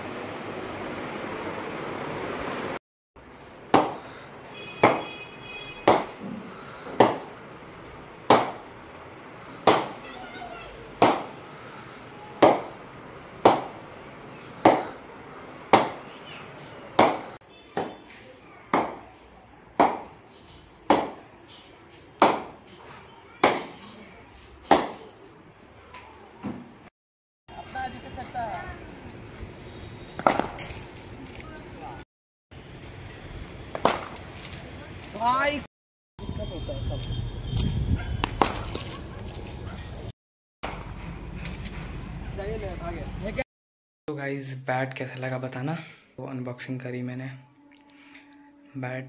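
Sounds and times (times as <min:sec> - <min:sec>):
ball knocking off cricket bat: 0:04.8 - 0:05.1, 0:05.8 - 0:06.4, 0:19.8 - 0:20.1, 0:30.2 - 0:30.8, 0:33.7 - 0:34.2.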